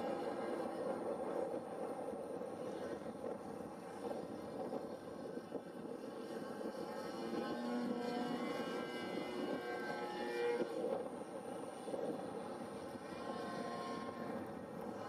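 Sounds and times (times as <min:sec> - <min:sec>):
model plane engine overhead: 0:00.0 - 0:15.0.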